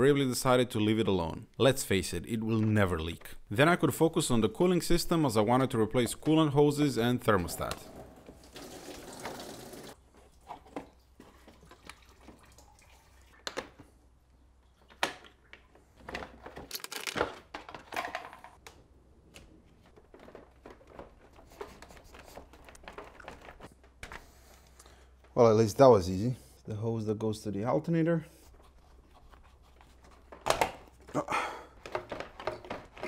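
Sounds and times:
hoses clicking and rubbing: 0:19.9 - 0:25.4.

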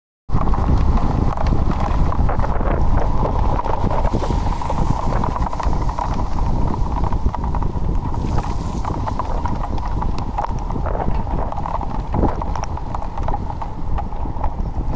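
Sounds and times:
wind rumble on microphone: 0:00.3 - 0:14.9
steady high whine: 0:01.8 - 0:13.4.

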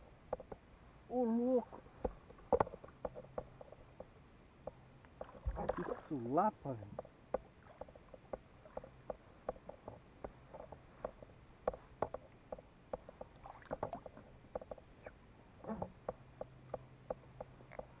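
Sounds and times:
water lapping at hull: 0:05.0 - 0:11.4, 0:12.2 - 0:18.0.

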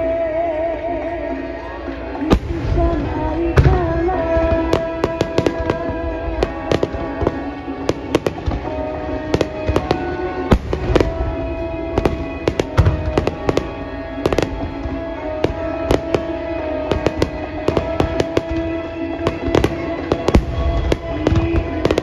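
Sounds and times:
music playing: 0:00.0 - 0:22.0
fireworks bangs and crackles: 0:02.0 - 0:22.0
deep fireworks booms: 0:02.3 - 0:22.0.

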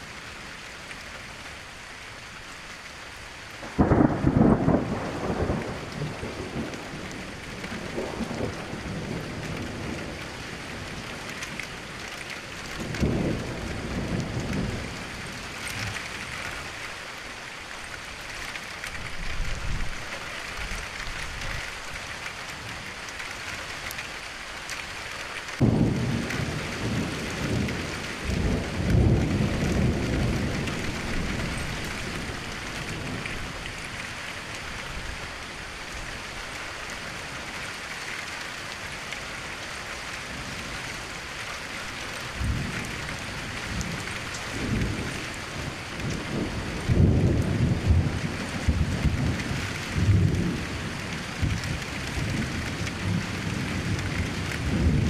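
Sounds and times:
steady rain falling: 0:00.0 - 0:55.0
sharp thunderclap: 0:03.6 - 0:06.8, 0:25.6 - 0:33.4
low thunder rumbles: 0:03.6 - 0:11.3, 0:12.7 - 0:16.5, 0:25.6 - 0:34.1, 0:42.2 - 0:55.0.

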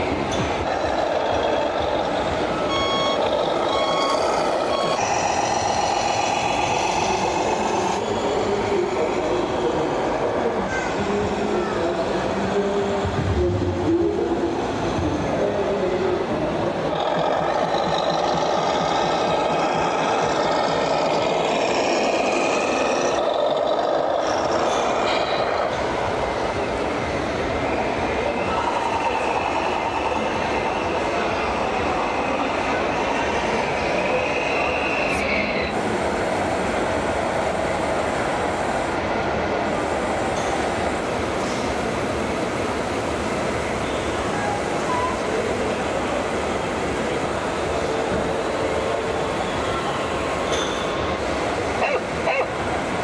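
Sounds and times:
hall noise: 0:00.0 - 0:53.0
steady multi-tone hum: 0:00.0 - 0:53.0
electronic reversing beeps: 0:02.0 - 0:08.1.

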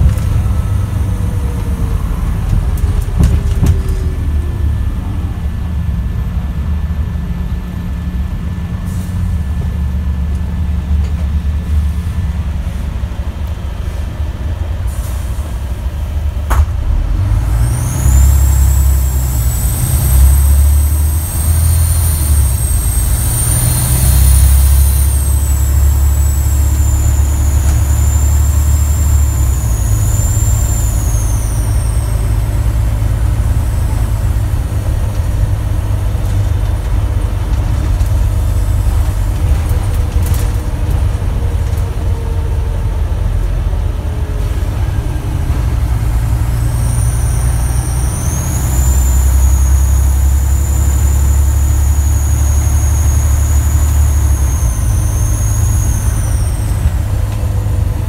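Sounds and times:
bus diesel engine pulling: 0:00.0 - 0:58.0
high-pitched turbo whistle: 0:17.5 - 0:34.2, 0:46.0 - 0:57.7.

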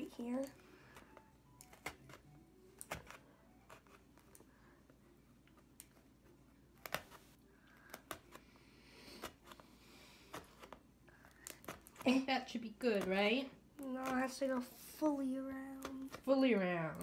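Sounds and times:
scissors cutting cardboard: 0:00.9 - 0:04.4, 0:06.7 - 0:14.6.

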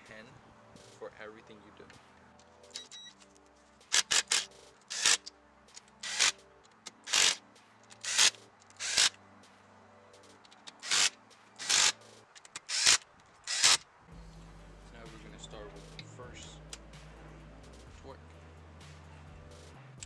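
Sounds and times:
impact drill bursts: 0:12.7 - 0:13.8.

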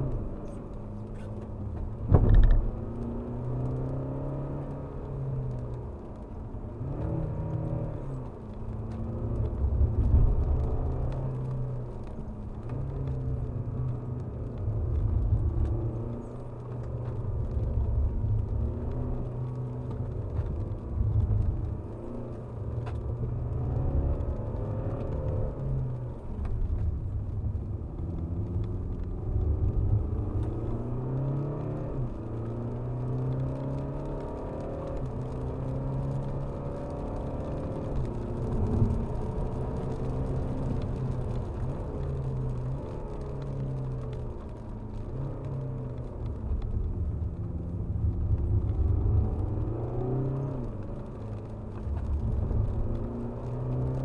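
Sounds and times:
car engine accelerating: 0:00.0 - 0:54.0
loud thump: 0:02.1 - 0:02.7.

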